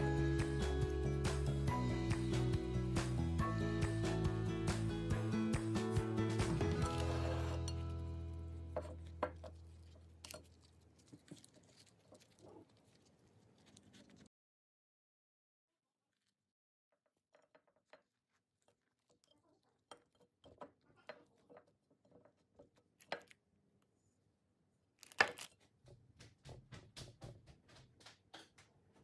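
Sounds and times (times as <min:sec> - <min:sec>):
tortilla rustling on plate: 0:08.9 - 0:14.3.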